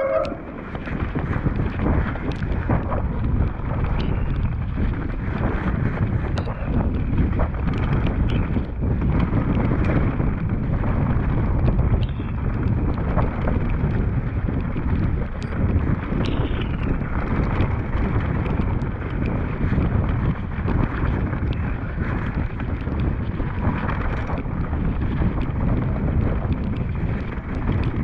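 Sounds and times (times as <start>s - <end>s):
bike clicks and rattles: 0.0s - 28.0s
bike tyres rumbling on dirt: 0.0s - 28.0s
wind buffeting microphone: 0.0s - 28.0s.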